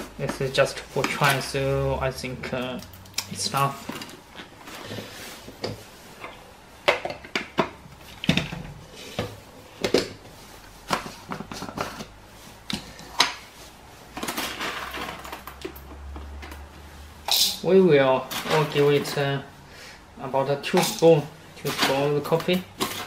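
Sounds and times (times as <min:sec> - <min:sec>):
soft rustle: 0:03.5 - 0:06.2, 0:10.2 - 0:14.2
plastic parts clicking and knocking: 0:05.6 - 0:10.2, 0:10.9 - 0:12.1.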